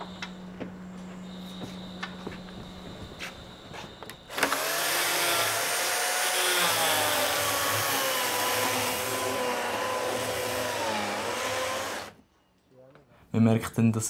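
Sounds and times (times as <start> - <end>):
electric chainsaw cutting wood: 4.3 - 12.2.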